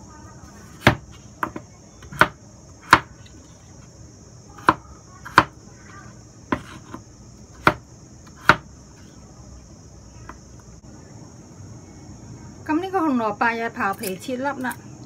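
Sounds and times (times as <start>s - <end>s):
knife chopping on wooden board: 0.7s - 3.2s, 4.6s - 5.5s, 6.5s - 7.0s, 7.6s - 8.7s.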